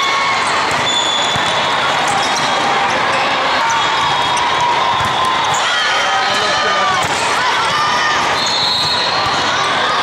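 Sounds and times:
voices of players and spectators: 0.0s - 10.0s
volleyball hits: 0.3s - 2.6s, 3.9s - 5.6s, 6.2s - 9.7s.

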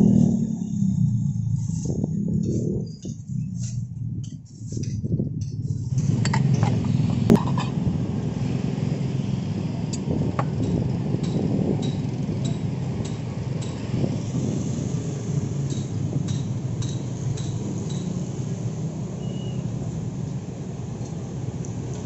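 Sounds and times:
road traffic rumble: 0.0s - 22.0s.

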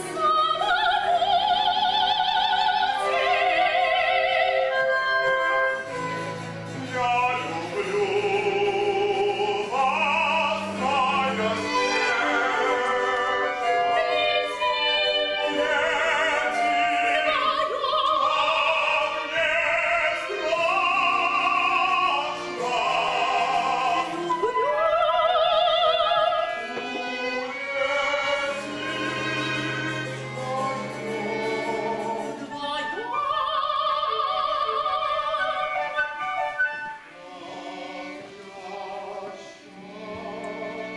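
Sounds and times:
woman singing opera: 0.0s - 6.2s, 7.0s - 40.9s
small instrumental ensemble: 0.0s - 18.1s, 20.1s - 33.4s.

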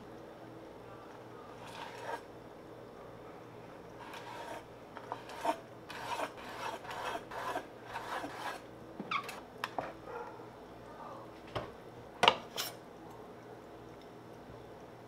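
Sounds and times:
cleaver slicing on wooden board: 4.0s - 8.6s
short squeak: 9.1s - 9.4s.

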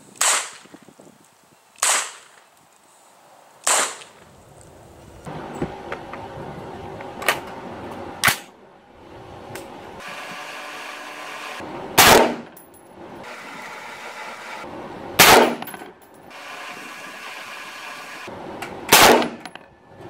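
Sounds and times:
rifle shots with echo: 1.8s - 2.3s, 3.6s - 4.1s, 12.0s - 12.6s, 15.2s - 15.7s, 18.9s - 19.5s.

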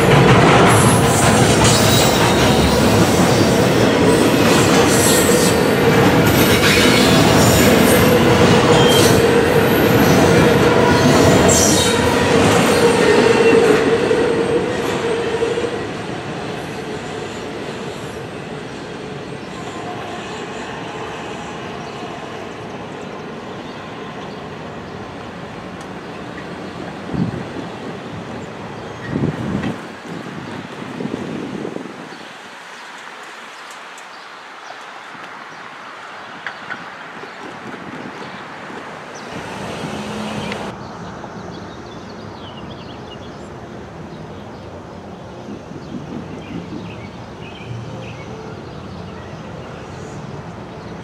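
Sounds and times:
freight train wheels squealing: 0.7s - 15.9s.

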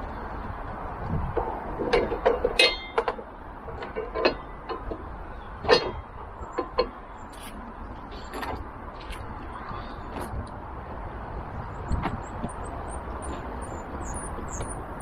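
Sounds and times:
short metallic ring: 2.6s - 3.0s.

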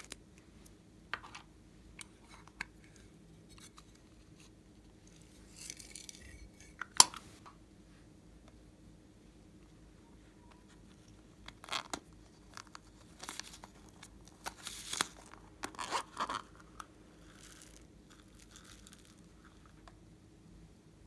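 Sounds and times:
beads pattering into glass dish: 17.2s - 19.2s.

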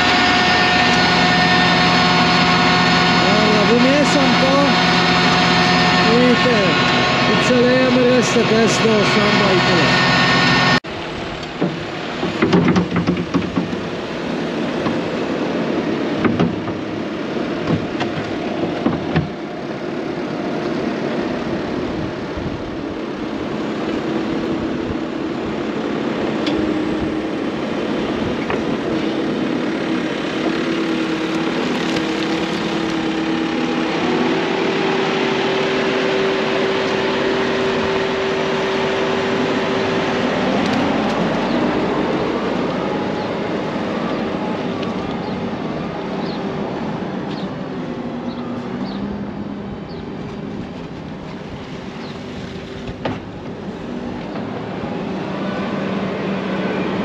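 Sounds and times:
engine running: 0.0s - 57.0s
knocks and rattles: 11.6s - 13.9s, 16.2s - 16.9s.

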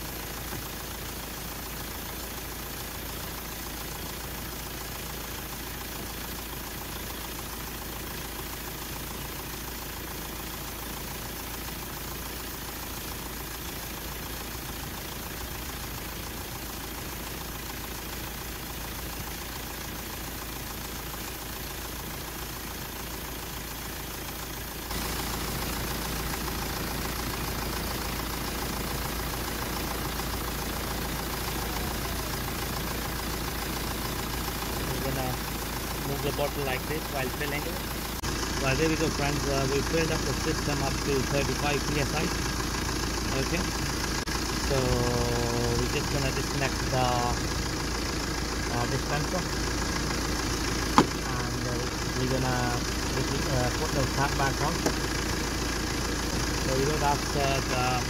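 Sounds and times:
air conditioning running: 0.0s - 58.0s
car engine idling: 0.0s - 58.0s.

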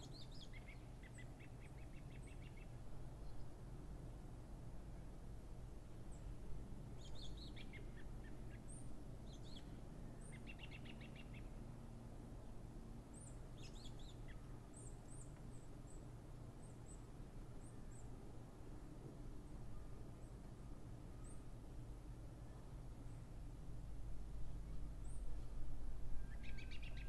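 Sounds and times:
low background rumble: 0.0s - 27.0s.

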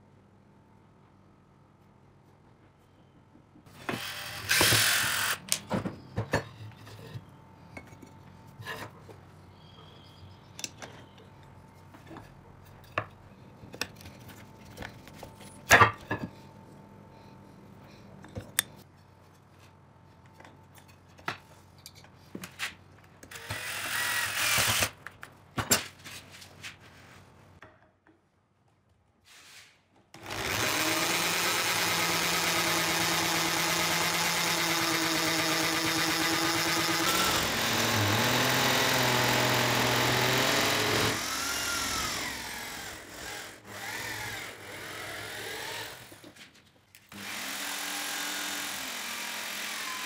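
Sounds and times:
electric drill shaving wood: 3.7s - 5.6s, 23.3s - 25.0s, 30.2s - 46.3s, 47.1s - 50.0s.

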